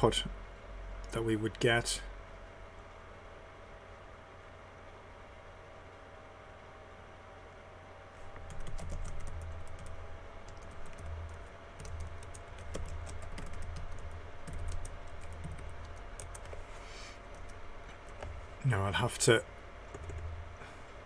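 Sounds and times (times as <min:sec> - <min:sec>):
typing on computer keyboard: 0:08.4 - 0:16.6, 0:19.9 - 0:20.3.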